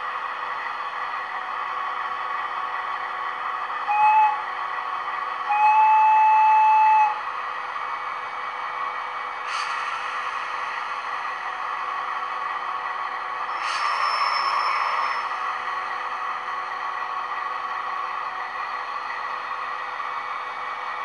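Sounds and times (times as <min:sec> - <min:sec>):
diesel engine idling: 0:08.1 - 0:13.4
hiss: 0:09.4 - 0:12.0, 0:13.3 - 0:16.0.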